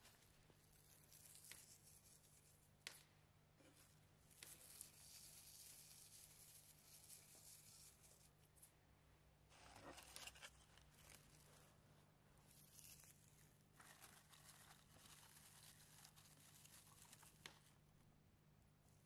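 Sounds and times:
dried herbs rustling: 9.6 - 11.8, 12.4 - 17.8.

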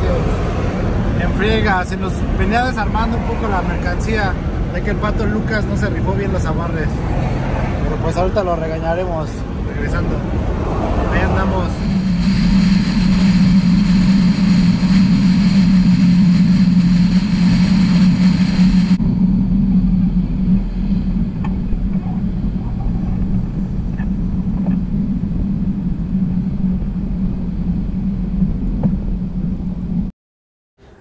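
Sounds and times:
truck road and engine noise: 0.0 - 30.1
wind rush: 0.0 - 30.1
low drone: 9.4 - 30.1.

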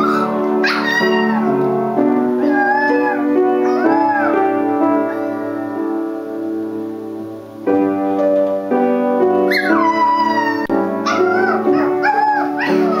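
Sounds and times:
puppy howling: 0.0 - 1.6, 2.4 - 4.5, 9.5 - 13.0
piano chords: 0.0 - 13.0.

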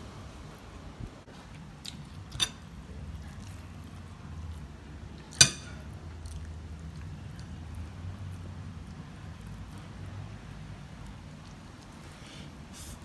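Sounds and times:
metal spoon clinking on dishes: 2.3 - 2.6, 5.4 - 5.9.

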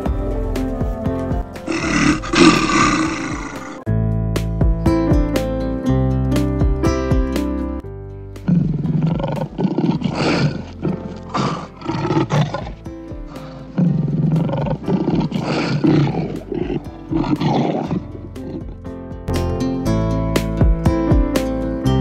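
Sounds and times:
music: 0.0 - 22.0
lion roaring and grunting: 1.6 - 3.8, 8.4 - 18.9.

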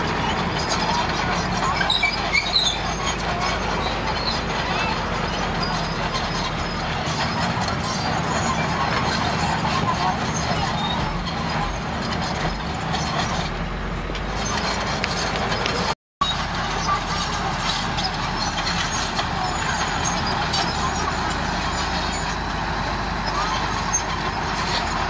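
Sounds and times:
bulldozer diesel engine running: 0.0 - 25.0.

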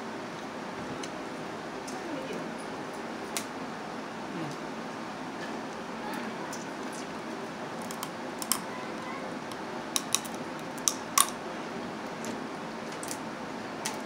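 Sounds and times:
low room hum: 0.0 - 14.0
crab shells cracking: 7.8 - 8.7, 9.5 - 11.4.

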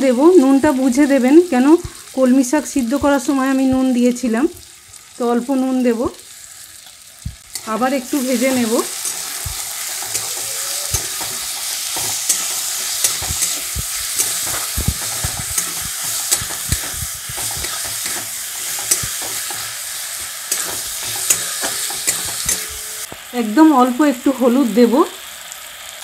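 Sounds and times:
vegetables sizzling in oil: 0.0 - 26.0
metal spatula scraping a pan: 7.5 - 23.1.

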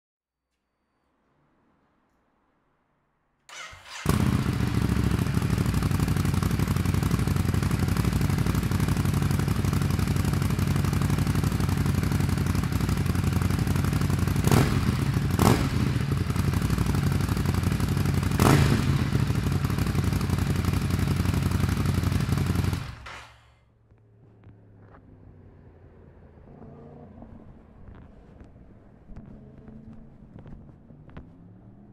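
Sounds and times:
motorcycle engine idling: 3.5 - 23.5.

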